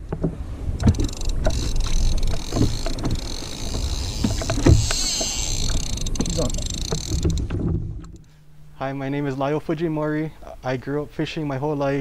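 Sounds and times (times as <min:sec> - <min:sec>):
water lapping against kayak hull: 0:00.0 - 0:08.4.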